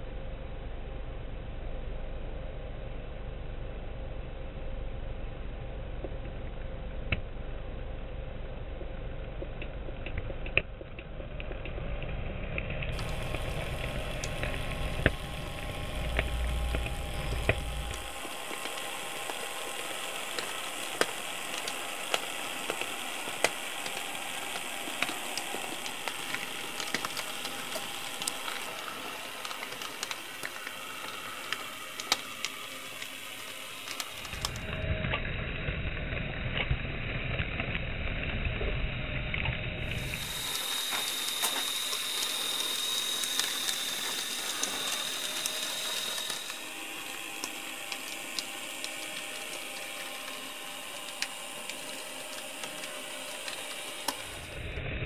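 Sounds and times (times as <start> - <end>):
wheels clicking on track: 12.9 - 34.6
model locomotive motor whirring: 12.9 - 34.9, 39.8 - 54.9.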